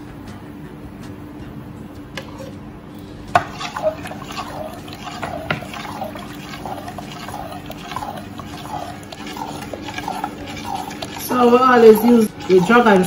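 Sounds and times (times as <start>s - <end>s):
liquid sloshing in bowl: 3.3s - 13.0s.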